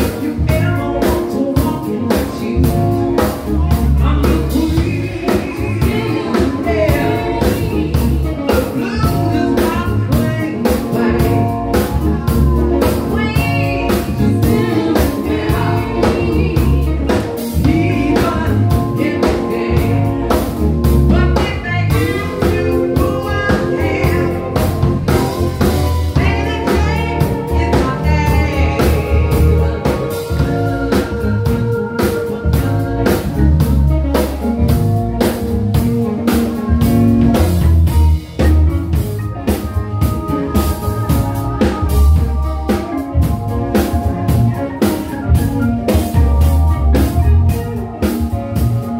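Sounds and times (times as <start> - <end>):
man and woman singing: 0.0 - 12.1, 12.8 - 25.0, 26.1 - 31.6
live band playing: 0.0 - 48.9.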